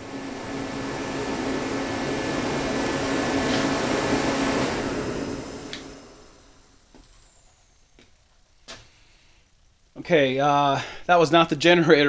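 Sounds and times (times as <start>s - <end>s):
heater click: 0.0s - 8.9s
heater running with low hum: 0.0s - 12.0s.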